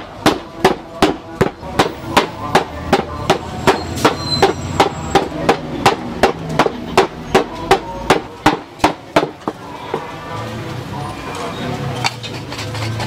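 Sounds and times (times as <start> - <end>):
wooden mallets pounding on wood: 0.0 - 10.1.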